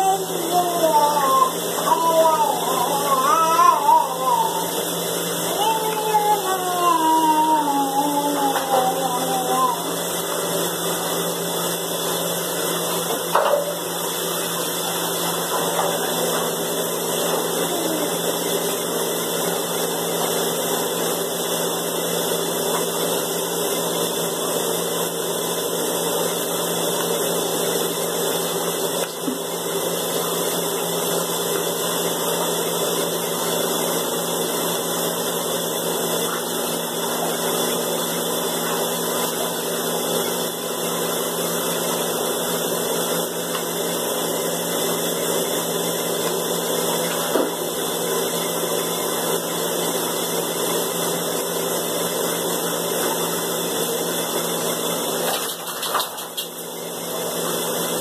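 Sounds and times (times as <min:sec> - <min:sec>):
water running from bathtub tap: 0:55.0 - 0:56.8.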